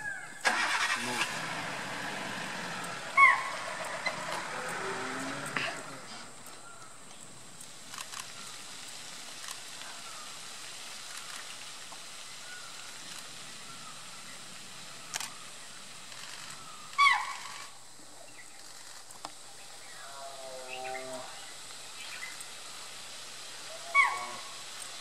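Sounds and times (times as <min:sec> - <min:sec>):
steady outdoor hiss: 0:00.0 - 0:25.0
deer shrill alarm call: 0:02.9 - 0:05.8, 0:17.0 - 0:17.6, 0:23.7 - 0:24.6.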